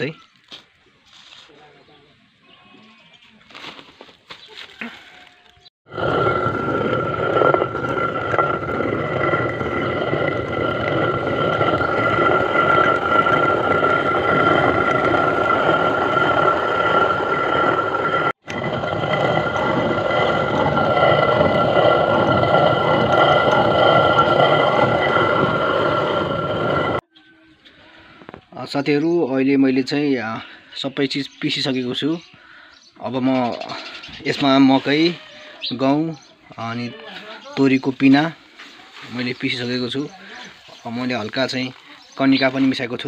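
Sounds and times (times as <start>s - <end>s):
stone quern grinding grain: 5.9s - 27.0s, 36.6s - 43.0s.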